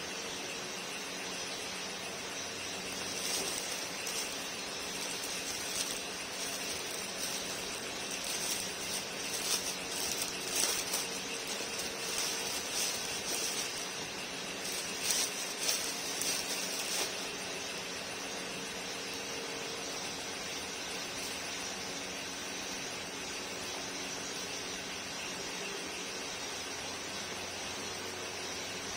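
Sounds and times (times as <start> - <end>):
steady hiss: 0.0 - 28.9
plastic wrapping crinkling: 2.9 - 17.4.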